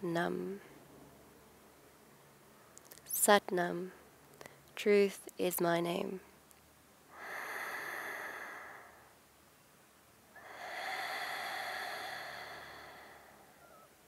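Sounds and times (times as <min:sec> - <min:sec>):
slow deep breathing: 0:07.1 - 0:09.2, 0:10.4 - 0:13.9.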